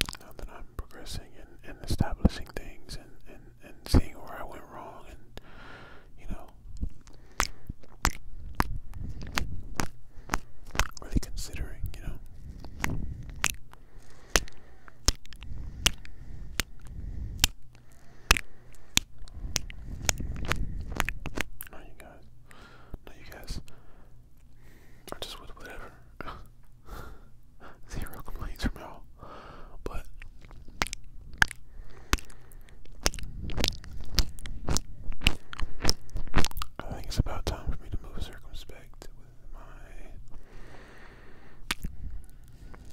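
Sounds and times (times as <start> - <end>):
breath and handling rumble: 5.2 - 38.4, 39.8 - 42.9
lip smacks of kisses: 6.8 - 11.0, 12.6 - 21.7, 30.1 - 36.8, 41.6 - 42.0.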